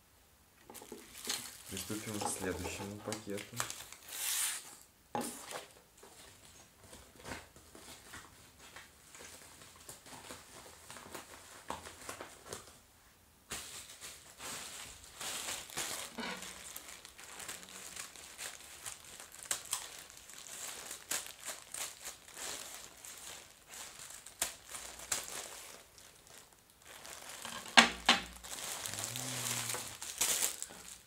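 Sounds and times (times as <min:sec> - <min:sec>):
plastic bag crinkling: 0:00.6 - 0:04.6, 0:13.6 - 0:31.0.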